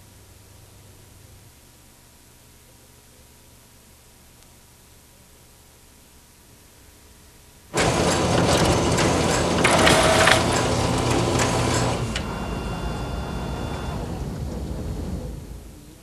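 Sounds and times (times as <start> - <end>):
dense mechanical clicking noise: 7.8 - 12.3
faint steady tones: 11.1 - 16.0.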